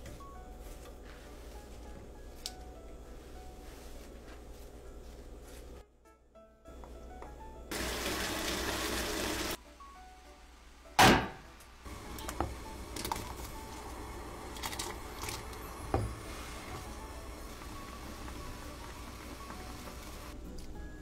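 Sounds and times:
soft background music: 0.0 - 21.0
stir-fry sizzling in a pan: 7.7 - 9.6, 11.6 - 20.4
loud thunk: 11.0 - 11.5.

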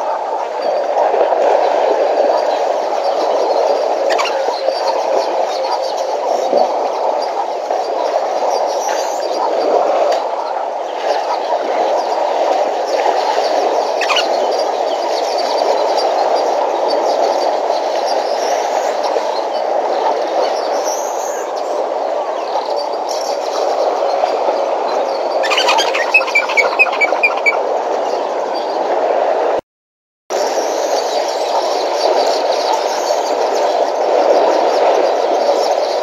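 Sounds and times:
bird chirping: 4.1 - 4.8, 14.0 - 14.3, 25.3 - 27.6.

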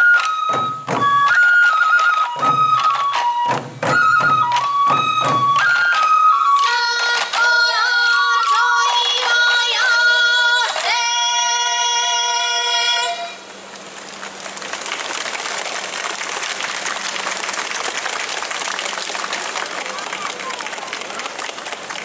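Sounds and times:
bamboo flute: 0.0 - 13.5
crowd clapping: 1.2 - 3.4, 4.4 - 7.2, 13.6 - 22.0
woman singing: 6.6 - 13.4.

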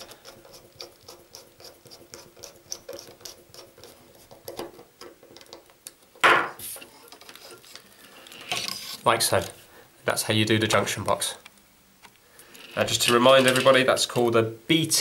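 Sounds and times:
screwdriver clicking and scraping: 0.0 - 4.6.

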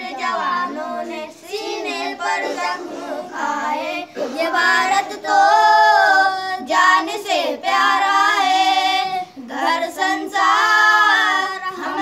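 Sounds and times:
boys singing unaccompanied: 0.0 - 12.0.

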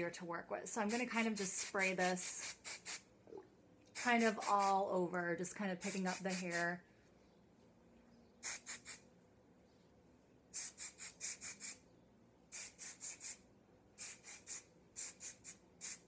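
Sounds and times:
hairspray can hissing spurts: 0.8 - 3.1, 3.9 - 4.8, 5.8 - 6.6, 8.4 - 9.0, 10.5 - 11.8, 12.5 - 13.4, 14.0 - 16.0.

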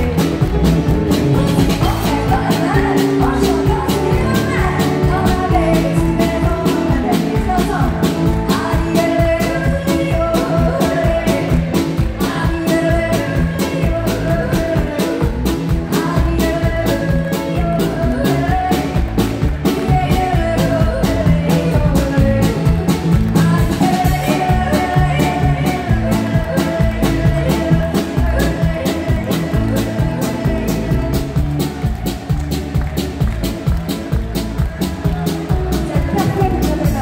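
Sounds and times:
woman singing into microphone: 0.0 - 31.5, 34.4 - 37.0
drum beat: 0.0 - 37.0.

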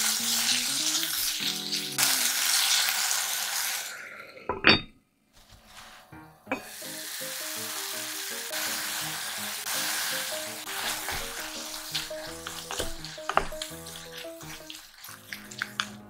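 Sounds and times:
food sizzling in a pot: 0.0 - 4.6, 6.5 - 16.0
light background music: 5.7 - 16.0
wooden spatula knocks: 12.2 - 13.7.

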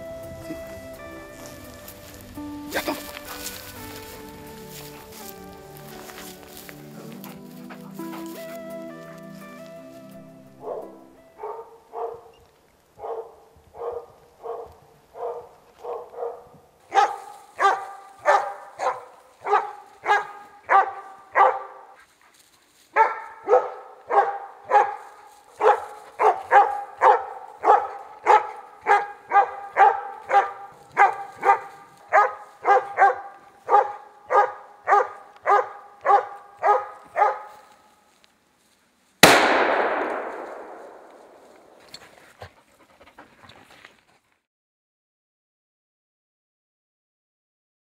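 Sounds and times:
dog barking: 10.6 - 12.4, 13.0 - 22.0, 22.9 - 37.7
rifle shot: 39.2 - 41.9.

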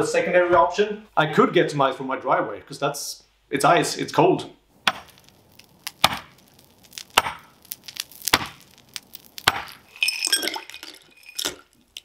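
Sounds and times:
pickaxe chopping ice: 5.9 - 6.4, 7.1 - 7.6, 8.2 - 8.6, 9.4 - 9.8
ice clinking into glass: 9.9 - 11.8.

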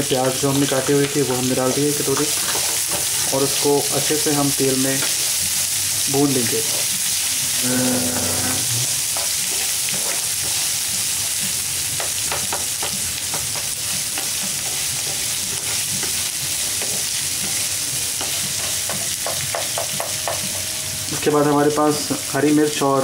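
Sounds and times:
food sizzling in hot oil: 0.0 - 23.0
spatula scraping and tapping pan: 0.2 - 3.4, 9.1 - 10.7, 12.0 - 17.6, 18.2 - 20.7.

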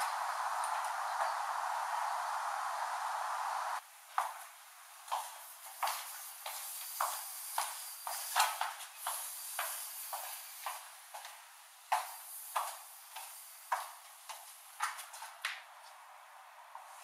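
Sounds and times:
steady hiss: 0.0 - 14.8
footsteps down a staircase: 4.1 - 16.1.

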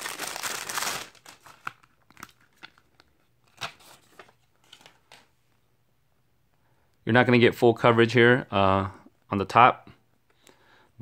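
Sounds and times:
plastic packaging crinkling: 0.0 - 5.2.

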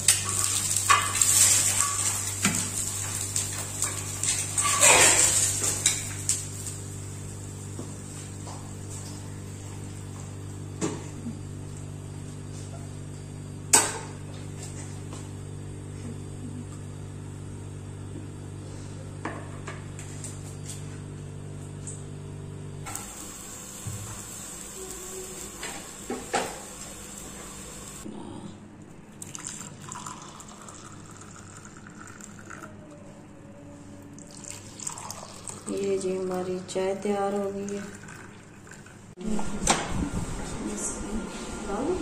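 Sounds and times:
utensils clinking: 0.0 - 6.3
electrical hum: 0.0 - 42.0
egg frying hiss: 22.9 - 28.0.

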